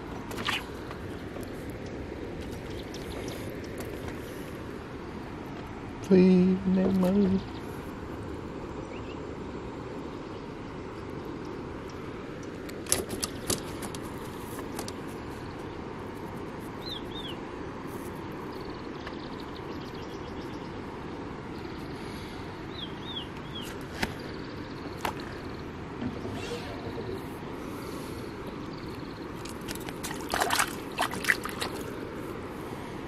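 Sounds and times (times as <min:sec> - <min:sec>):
water lapping at the bank: 0:00.0 - 0:08.8, 0:24.8 - 0:33.0
bird chirping: 0:22.7 - 0:27.4.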